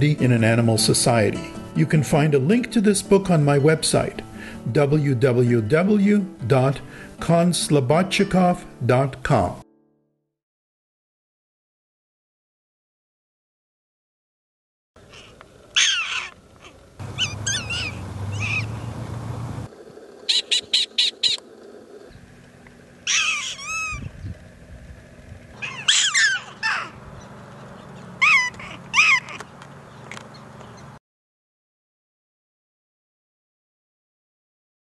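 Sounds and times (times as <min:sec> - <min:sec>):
prairie dogs barking: 0:15.0 - 0:24.2, 0:25.5 - 0:31.0
distant rumbling: 0:15.0 - 0:31.0.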